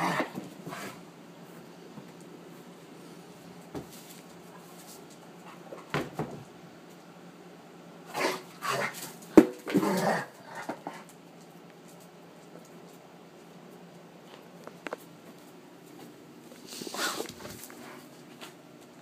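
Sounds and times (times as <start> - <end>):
dogs scuffling: 8.6 - 19.0.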